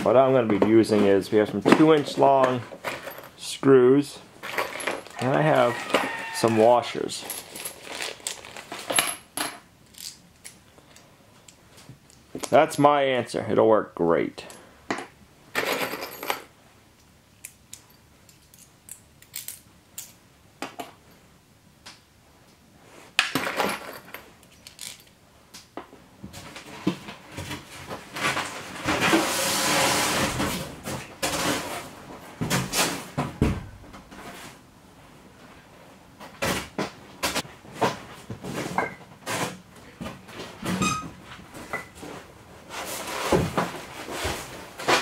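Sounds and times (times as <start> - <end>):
screws rattling in plastic box: 7.4 - 9.0.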